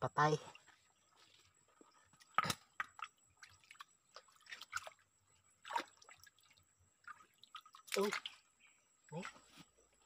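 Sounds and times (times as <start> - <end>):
water splashing and dripping: 2.1 - 8.5.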